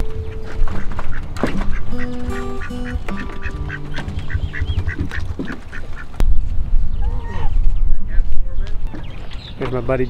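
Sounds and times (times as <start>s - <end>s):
background music: 0.0s - 5.8s
ducks quacking: 0.0s - 6.2s.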